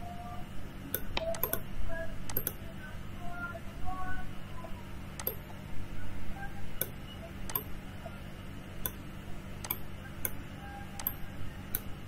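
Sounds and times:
low steady hum: 0.0s - 12.0s
computer mouse clicking: 0.9s - 1.6s, 2.3s - 2.6s, 5.2s - 5.6s, 6.8s - 7.8s, 9.6s - 10.4s, 11.0s - 11.9s.

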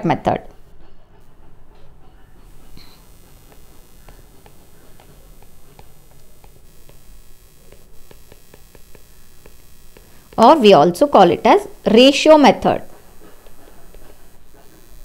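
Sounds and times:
low steady hum: 1.7s - 15.0s
stylus tapping on tablet screen: 3.5s - 10.6s.

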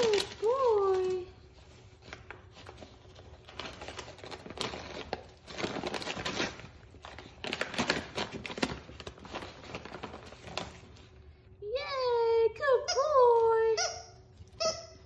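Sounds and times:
paper bag crinkling and tearing: 0.0s - 11.2s.

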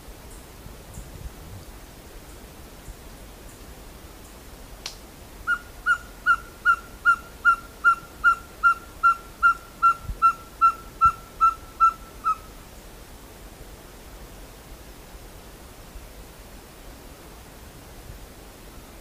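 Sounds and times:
owl whistled hoots: 5.5s - 12.5s.

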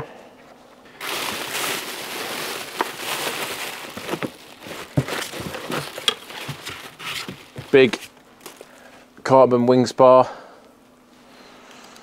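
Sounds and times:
bubble wrap crinkling: 0.9s - 8.9s.

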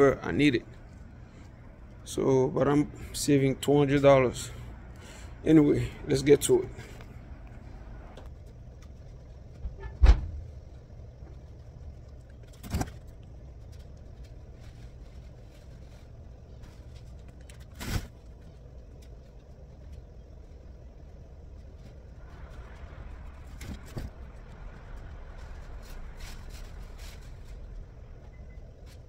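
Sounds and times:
steady low rumble: 0.0s - 29.0s
dull thumps in metal van: 9.6s - 10.6s.

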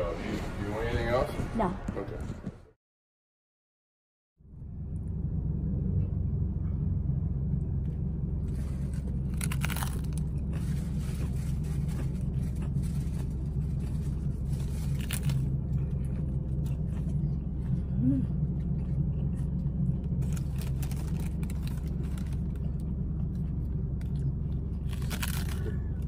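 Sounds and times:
truck engine idling: 4.4s - 26.0s
taco crunching bite: 8.4s - 26.0s.

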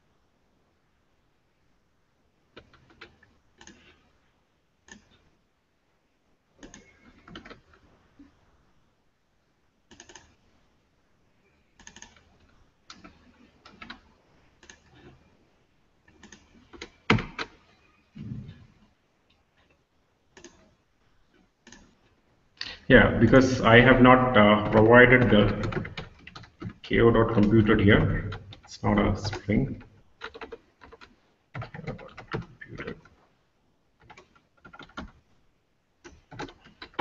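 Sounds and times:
computer keyboard keystrokes: 2.6s - 3.9s, 6.6s - 7.7s, 9.9s - 10.4s, 11.8s - 12.3s, 12.9s - 14.0s, 16.1s - 17.6s, 20.4s - 20.6s, 24.3s - 33.1s, 34.0s - 35.2s, 36.0s - 37.0s.

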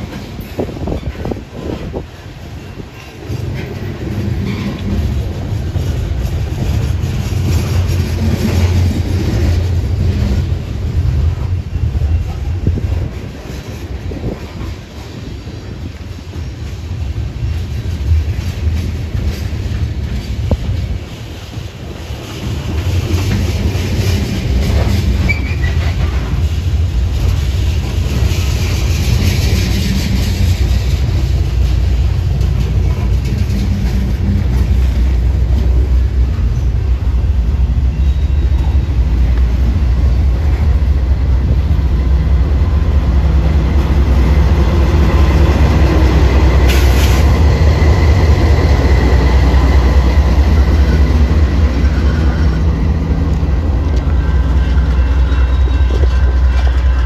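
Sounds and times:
diesel locomotive rumble: 0.0s - 57.0s
train wheels clacking on rail joints: 0.0s - 57.0s
wheel squeal: 24.9s - 26.4s, 37.8s - 39.2s, 53.8s - 57.0s.

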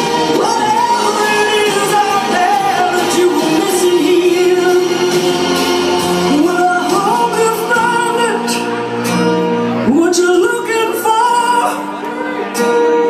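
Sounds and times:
person singing long notes: 0.0s - 8.8s
loud music: 0.0s - 13.0s.

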